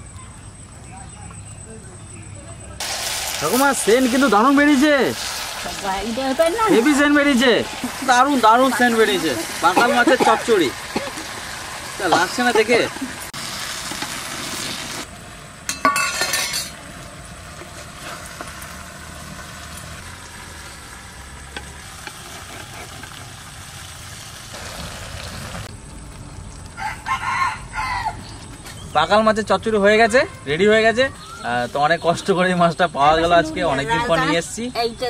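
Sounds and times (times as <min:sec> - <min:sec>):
curry sizzling in a pot: 0:02.8 - 0:27.2.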